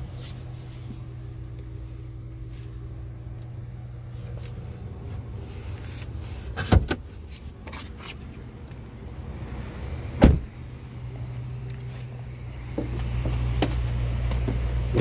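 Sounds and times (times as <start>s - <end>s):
low cabin hum: 0.0s - 15.0s
car door clunk opening: 6.5s - 7.1s, 10.2s - 10.5s.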